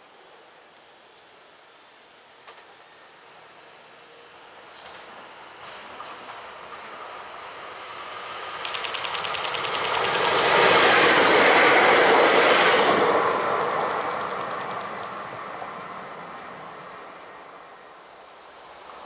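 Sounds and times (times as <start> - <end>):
train wheels rushing on rail: 4.8 - 17.7
train wheels clicking: 8.5 - 15.5.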